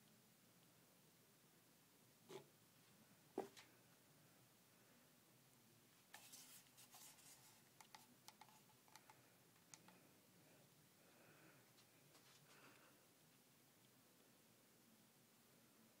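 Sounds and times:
faint sharp clicks: 0:07.8 - 0:10.0.

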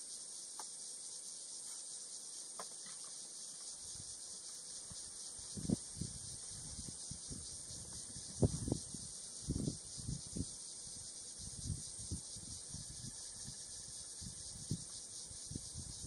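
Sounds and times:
high insect chorus: 0:00.0 - 0:16.0.

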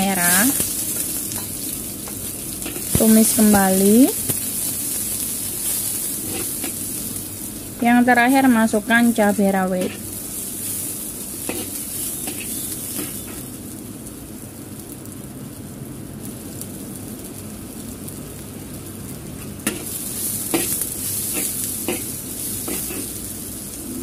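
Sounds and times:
vegetables sizzling in oil: 0:00.0 - 0:24.0
spatula scraping and tapping wok: 0:00.1 - 0:07.2, 0:09.1 - 0:13.5, 0:19.4 - 0:23.5.

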